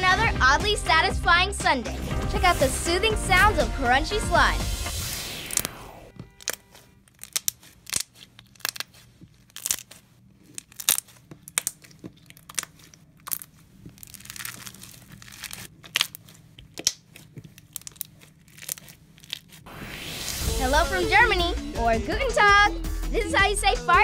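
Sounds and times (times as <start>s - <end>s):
crunchy slime crackling: 5.4s - 19.7s.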